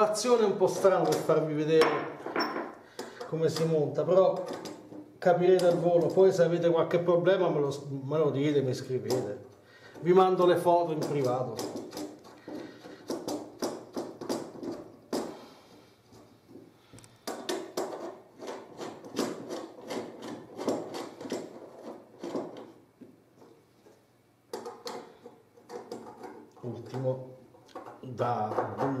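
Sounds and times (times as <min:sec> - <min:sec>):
metal parts clicking and scraping: 0:16.1 - 0:22.8.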